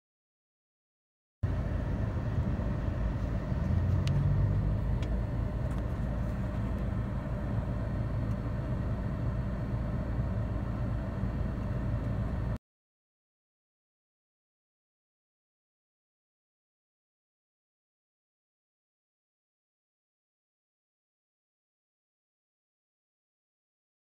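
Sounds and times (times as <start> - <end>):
car engine: 1.4 - 12.6
road rumble: 1.4 - 12.6.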